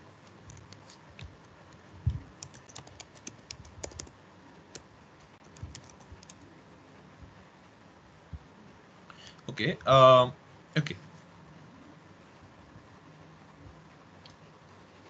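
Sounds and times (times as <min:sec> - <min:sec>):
keyboard typing: 0:00.2 - 0:04.1, 0:04.7 - 0:06.5.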